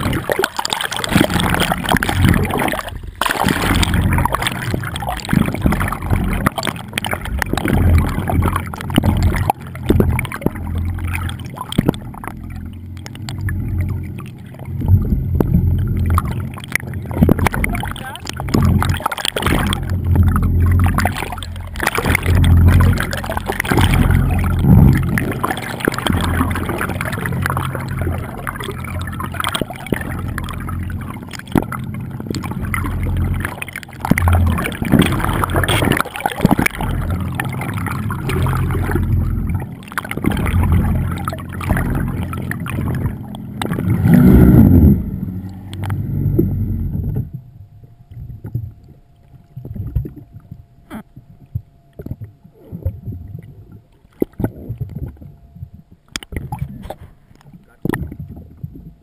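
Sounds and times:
water sloshing and gurgling: 0:00.0 - 0:59.0.

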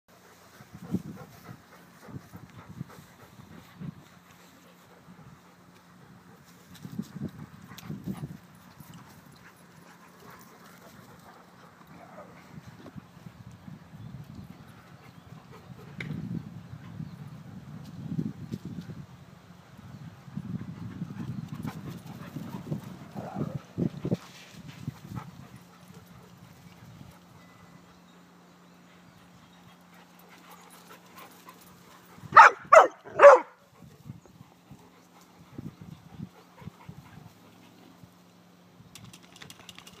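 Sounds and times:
dog barking: 0:32.4 - 0:33.6.

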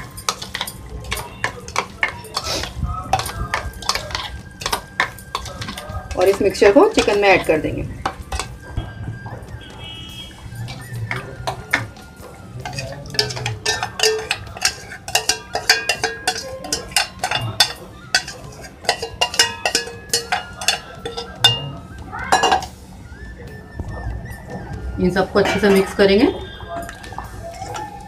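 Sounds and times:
spoon scraping steel bowl: 0:00.0 - 0:07.6, 0:12.6 - 0:21.6.

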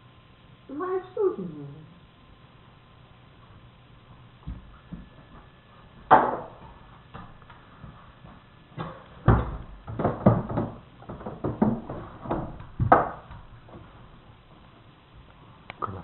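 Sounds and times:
wooden chair knocks and bumps: 0:08.8 - 0:13.8.

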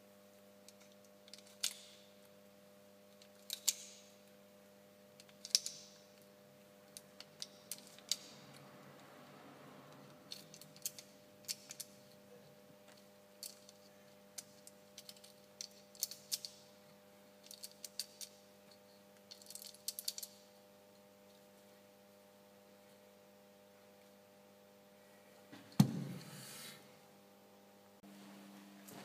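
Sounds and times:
loud knock: 0:25.8 - 0:26.3.

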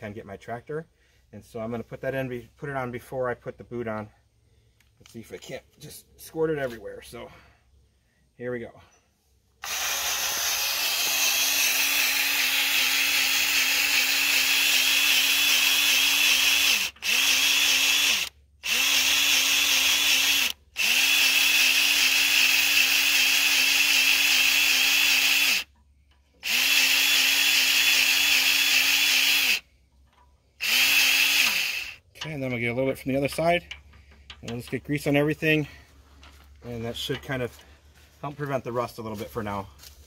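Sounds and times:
grease gun motor whining: 0:09.6 - 0:29.7, 0:30.6 - 0:32.4.

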